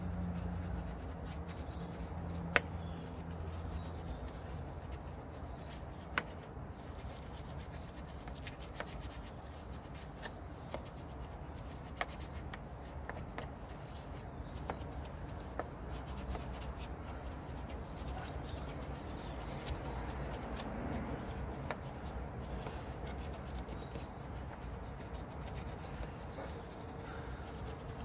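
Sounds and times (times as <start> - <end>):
brush scrubbing wet wheel: 0.1 - 28.0
brush clicking on spokes: 0.2 - 27.0.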